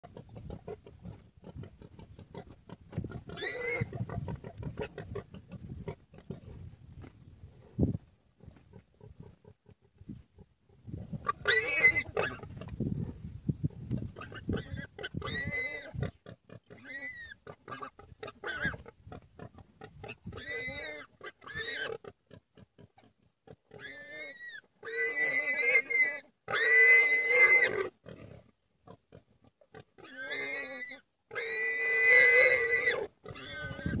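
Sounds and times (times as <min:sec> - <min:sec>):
warthog squealing: 0:00.2 - 0:06.4, 0:11.2 - 0:12.7, 0:14.2 - 0:18.9, 0:19.9 - 0:22.1, 0:23.7 - 0:28.2, 0:30.0 - 0:34.0.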